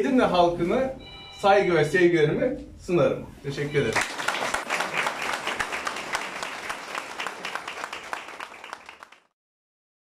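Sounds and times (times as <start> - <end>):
audience applauding: 3.9 - 9.4.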